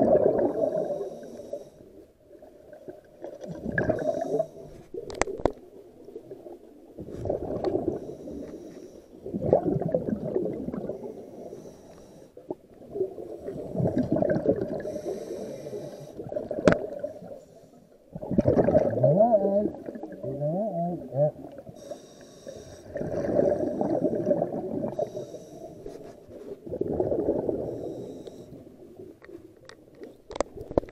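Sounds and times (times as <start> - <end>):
bubbling exhale underwater: 0.0 - 1.3, 2.5 - 4.8, 7.0 - 8.2, 9.2 - 11.2, 12.5 - 17.3, 18.1 - 20.3, 22.6 - 25.8, 26.6 - 28.6
regulator hiss on inhale: 0.5 - 1.9, 3.9 - 4.8, 7.9 - 9.2, 10.9 - 12.5, 13.2 - 13.8, 14.8 - 16.3, 17.1 - 18.0, 21.7 - 26.5, 27.6 - 28.7.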